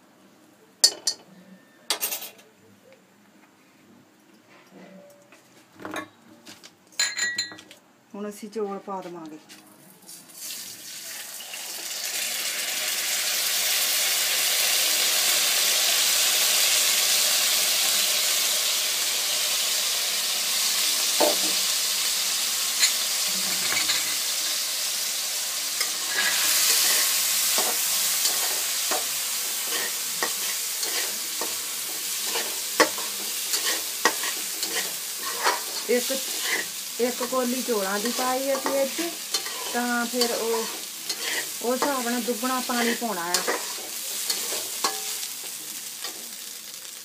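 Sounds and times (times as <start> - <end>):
rice sizzling in hot oil: 10.2 - 47.0
metal ladle scraping pan: 25.8 - 37.4, 38.0 - 45.3.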